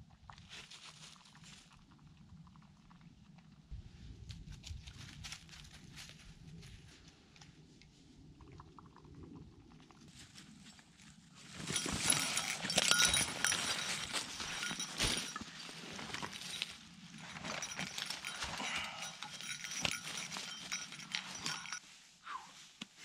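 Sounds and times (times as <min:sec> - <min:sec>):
crunching of dry leaves: 0:04.3 - 0:06.9, 0:11.3 - 0:22.0.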